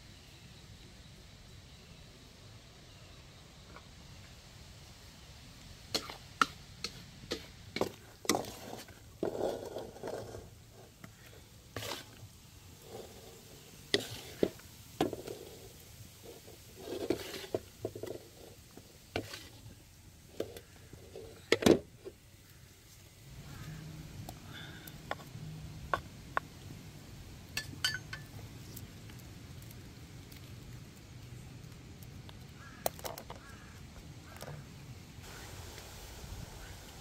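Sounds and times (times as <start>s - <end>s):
utensil knocking clay cookware: 27.6s - 28.3s.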